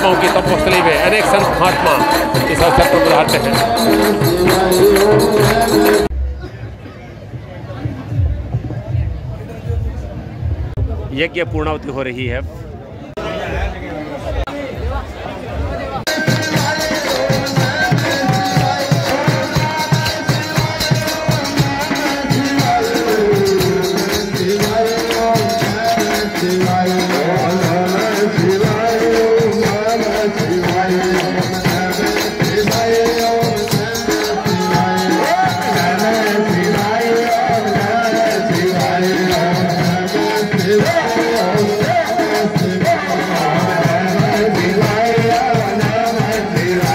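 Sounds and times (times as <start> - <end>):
drum beat: 0.0 - 6.1, 16.0 - 46.9
hand percussion: 0.0 - 6.2, 16.1 - 46.9.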